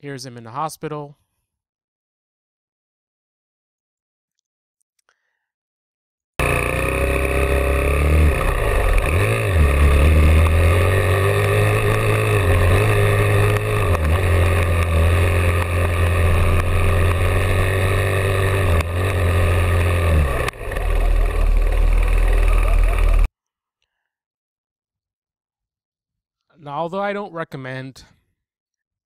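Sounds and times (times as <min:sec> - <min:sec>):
dirt bike engine revving: 0:06.4 - 0:23.3.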